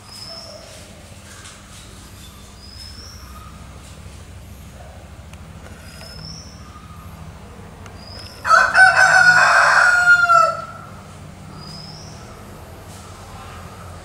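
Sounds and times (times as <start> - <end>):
rooster crowing: 8.4 - 11.0.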